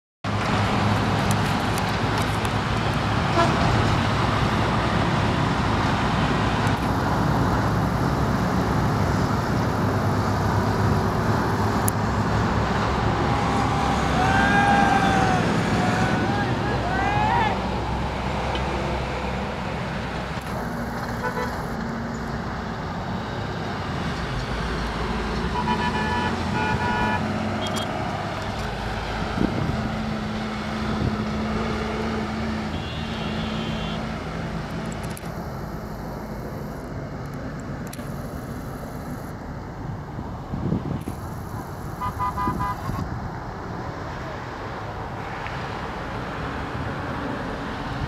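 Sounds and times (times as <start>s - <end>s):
vehicle engine hum: 0.3s - 48.0s
car horn toots: 21.2s - 21.8s, 25.6s - 27.9s, 32.7s - 34.0s, 42.0s - 43.0s.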